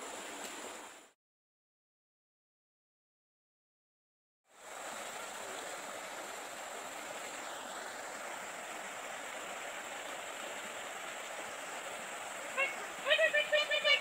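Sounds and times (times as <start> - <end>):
steady rushing hiss: 4.5 - 14.0.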